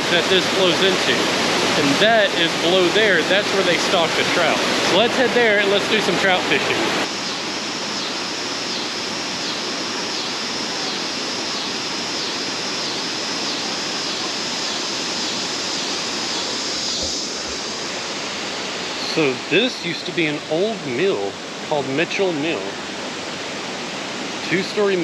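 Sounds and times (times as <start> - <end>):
water rushing and splashing: 0.0 - 25.0.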